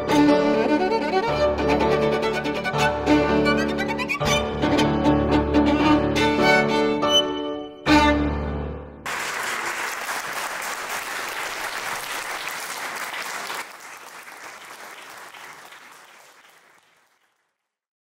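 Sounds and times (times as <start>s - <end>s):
children applauding: 9.1s - 17.8s.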